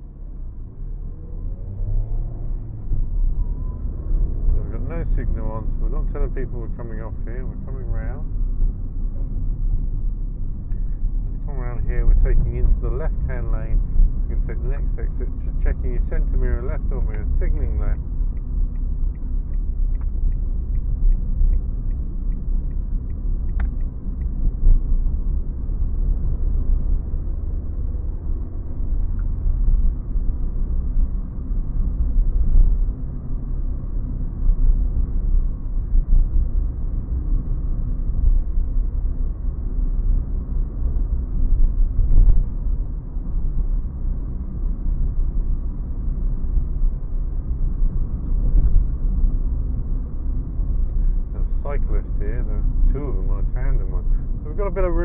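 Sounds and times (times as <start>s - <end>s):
car engine and tyres rumbling: 0.0s - 55.0s
turn indicator ticking: 16.8s - 24.8s.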